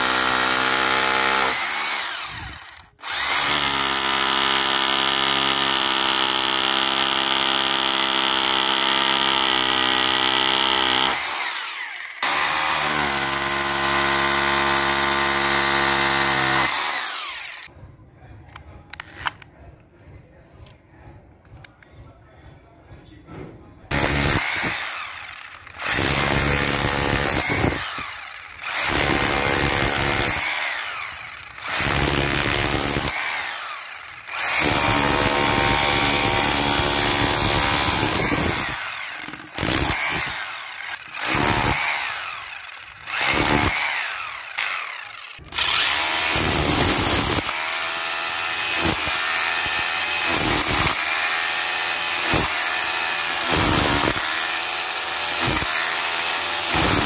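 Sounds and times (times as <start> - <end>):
rotary hammer chiselling concrete: 0.0 - 17.7, 23.9 - 57.0.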